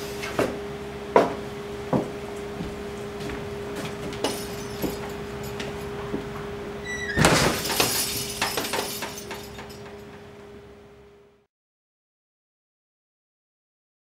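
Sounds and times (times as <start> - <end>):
steady low hum: 0.0 - 11.4
knocks and clinks: 4.0 - 10.3
short high squeak: 6.8 - 7.4
loud crash and clatter: 7.2 - 9.9.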